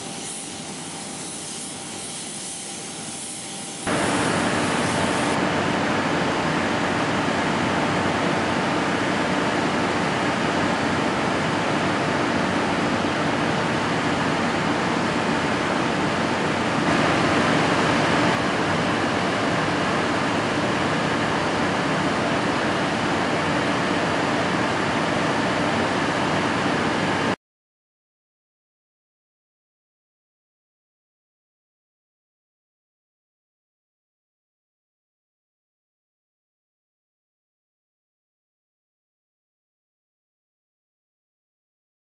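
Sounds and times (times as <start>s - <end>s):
air rushing in spray booth: 0.0s - 5.4s, 14.2s - 18.4s
paint spray burst: 0.0s - 5.4s.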